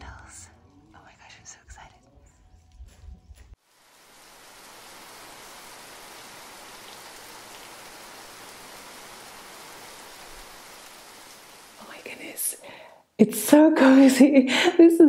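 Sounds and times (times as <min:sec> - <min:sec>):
steady rain falling: 0:03.6 - 0:14.3.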